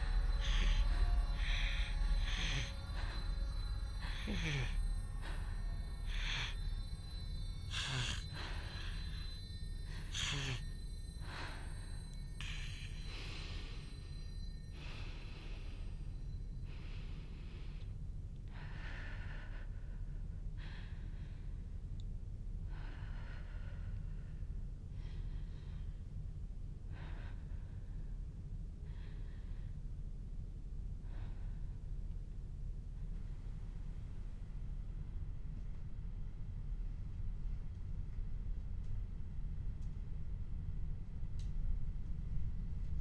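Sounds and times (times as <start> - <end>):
person breathing heavily: 0.0 - 17.9
steady low rumble: 0.0 - 43.0.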